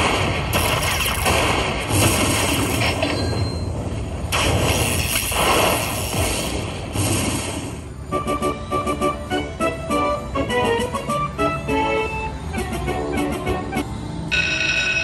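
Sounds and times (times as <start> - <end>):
slot machine lightning zap bursts: 0.0 - 3.0, 4.3 - 7.8.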